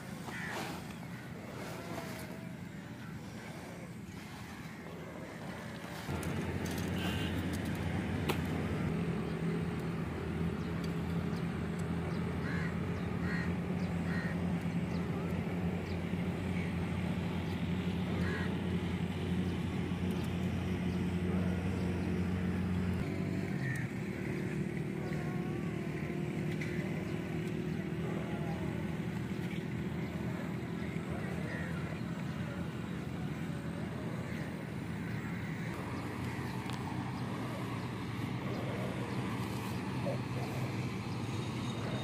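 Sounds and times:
motor droning: 0:00.0 - 0:42.0
crows cawing: 0:00.3 - 0:01.2, 0:12.4 - 0:14.4, 0:18.2 - 0:18.6, 0:23.6 - 0:23.9.

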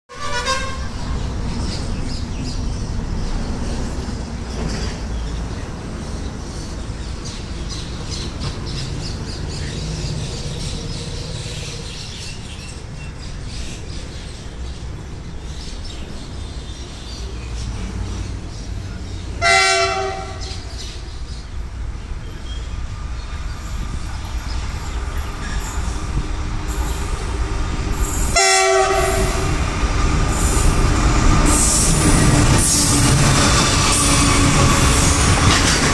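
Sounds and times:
locomotive horn blasts: 0:00.1 - 0:01.0, 0:19.4 - 0:20.7, 0:28.3 - 0:29.6
diesel locomotive engine and wheels: 0:00.1 - 0:35.9.

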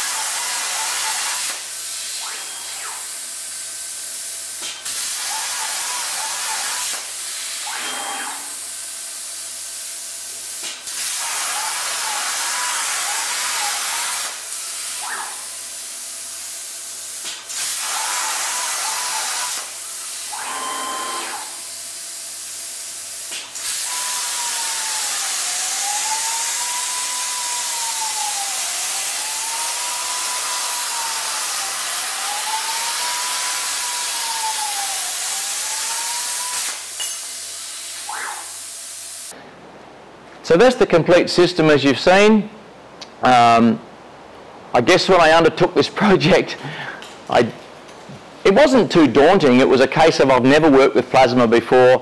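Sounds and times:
plasma cutter hissing: 0:00.0 - 0:39.3
whining tone: 0:02.2 - 0:03.1, 0:07.7 - 0:08.6, 0:20.3 - 0:21.6.

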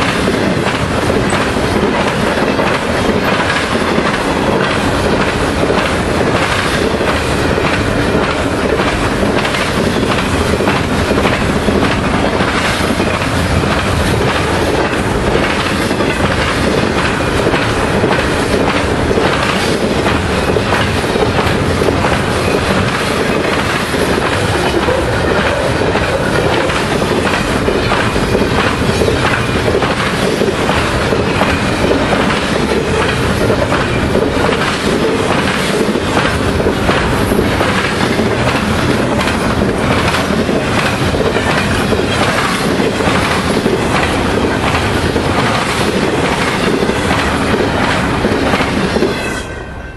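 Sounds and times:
wheels clacking over rail joints: 0:00.0 - 0:49.3
freight train wheels rumbling: 0:00.0 - 0:49.9.

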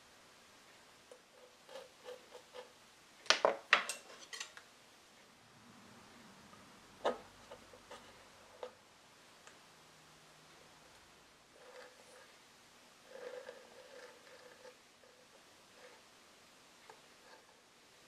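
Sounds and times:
tools clicking and tapping on workbench: 0:01.1 - 0:04.6.

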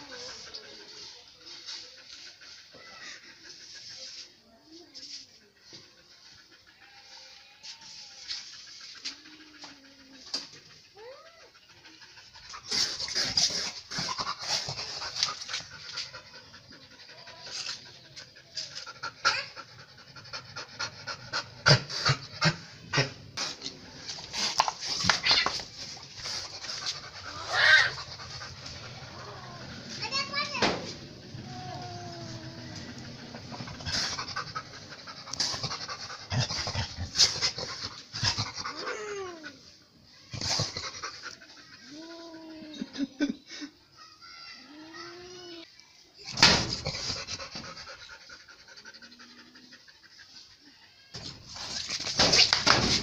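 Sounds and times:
dog panting: 0:08.3 - 0:25.2, 0:32.5 - 0:38.8
dog rising cry: 0:25.0 - 0:37.4.

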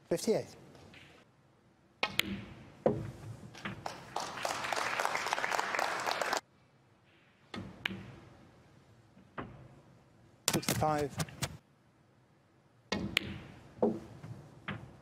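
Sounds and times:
audience applause: 0:03.8 - 0:06.4.

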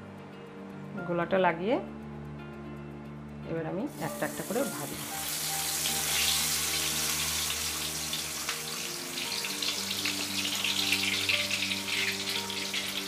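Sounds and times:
skewer deep-frying in bubbling oil: 0:03.9 - 0:13.0.

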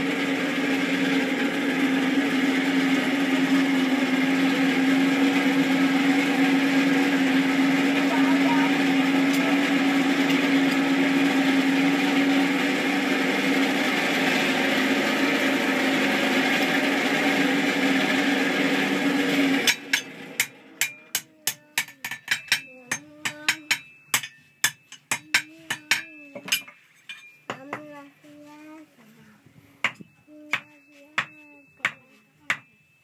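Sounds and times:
forge blower humming: 0:00.0 - 0:26.6
hammer striking metal on anvil: 0:19.7 - 0:27.7.

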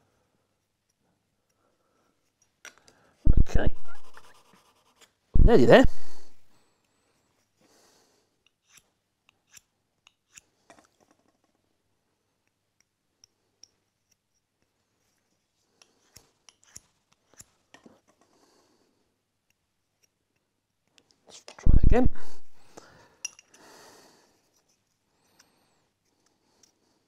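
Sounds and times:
small metal parts clicking: 0:23.2 - 0:23.6.

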